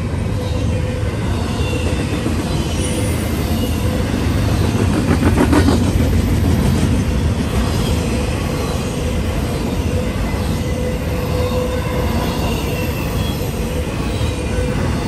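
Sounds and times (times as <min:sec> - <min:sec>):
train wheels rumbling on rail: 0:00.0 - 0:15.0
train wheels clacking: 0:01.5 - 0:08.1.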